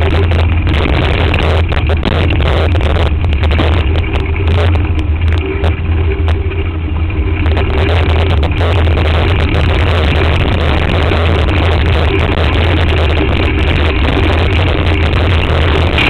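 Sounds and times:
sharp clicks and knocks from bumps: 0:00.0 - 0:06.8
bike rumbling and rattling on dirt: 0:00.0 - 0:16.0.

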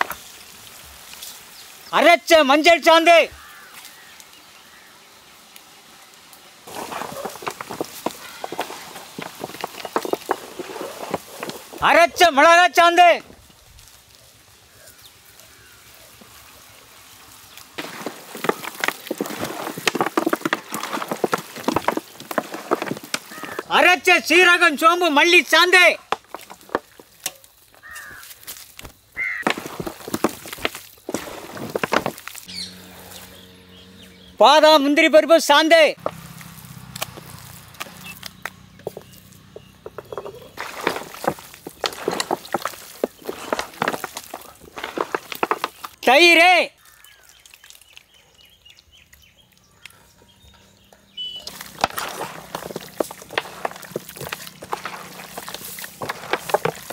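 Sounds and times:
hands squelching raw meat: 0:51.3 - 0:56.9.

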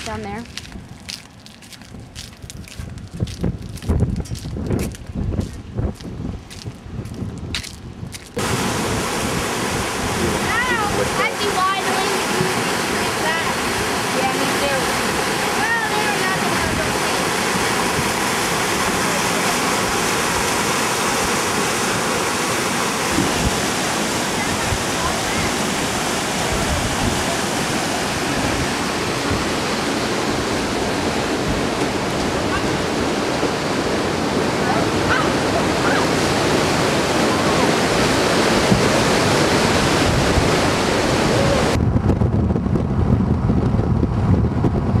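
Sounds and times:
flood water rushing: 0:08.3 - 0:41.8.

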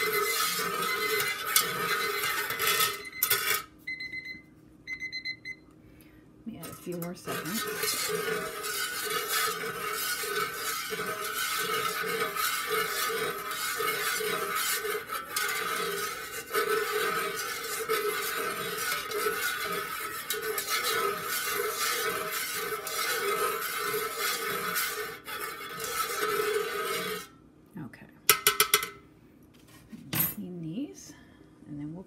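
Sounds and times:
metal utensil scraping metal pitcher: 0:00.0 - 0:03.6, 0:06.5 - 0:27.3
steady pitched hum: 0:00.0 - 0:32.0.

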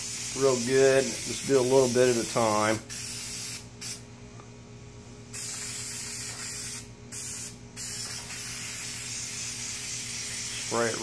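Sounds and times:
aerosol spray can hissing: 0:05.4 - 0:11.0.

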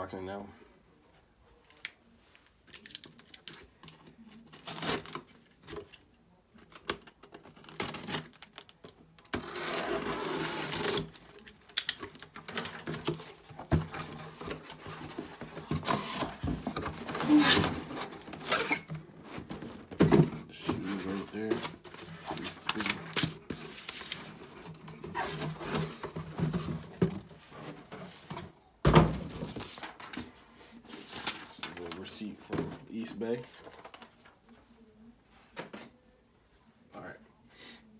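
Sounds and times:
cardboard flaps rustling and scraping: 0:12.4 - 0:30.3.

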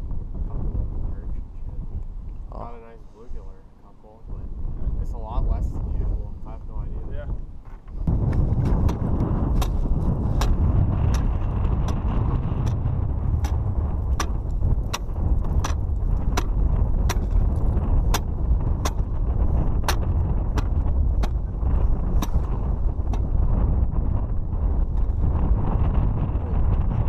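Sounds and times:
ice auger rumbling: 0:08.2 - 0:25.9.

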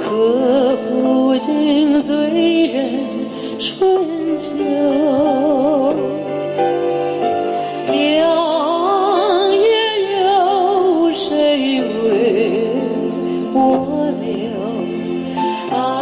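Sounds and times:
slow song with singer: 0:00.0 - 0:16.0.

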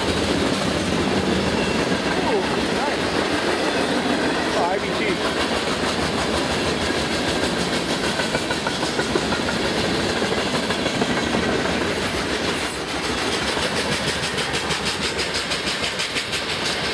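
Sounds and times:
freight train wheels clicking on rails: 0:00.0 - 0:16.9
train rumble: 0:00.0 - 0:16.9.

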